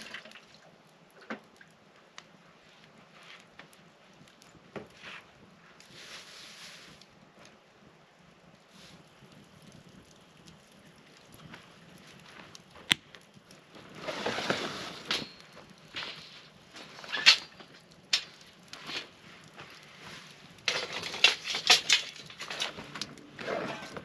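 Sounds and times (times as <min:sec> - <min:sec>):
rustling: 0:04.8 - 0:07.5, 0:13.5 - 0:24.0
metal grill grate clanking: 0:20.7 - 0:24.0.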